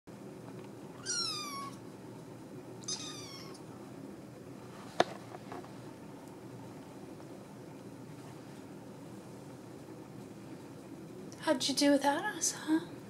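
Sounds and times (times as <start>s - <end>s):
kitten mewing: 1.0s - 1.8s, 2.8s - 3.6s.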